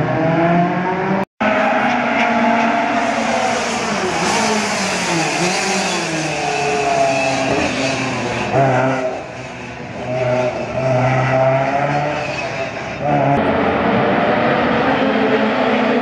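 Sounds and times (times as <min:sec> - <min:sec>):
rally car engine revving: 0:00.0 - 0:16.0.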